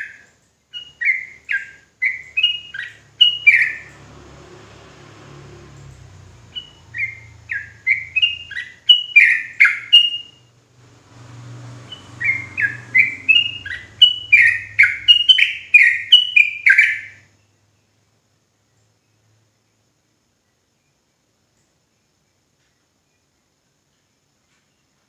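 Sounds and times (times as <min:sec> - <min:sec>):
bird singing rapid song: 0:00.0 - 0:25.0.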